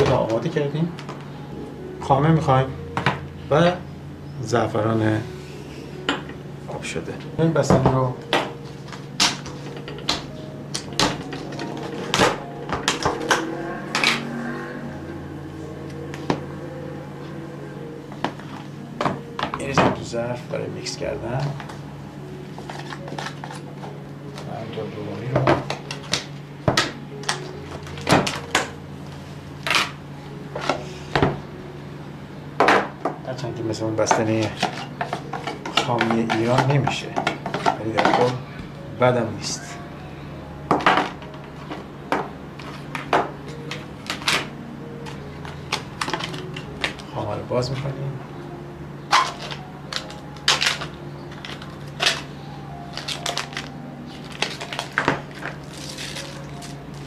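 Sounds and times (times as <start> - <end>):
steady low hum: 0.0 - 57.0
plastic packaging crinkling: 52.9 - 57.0.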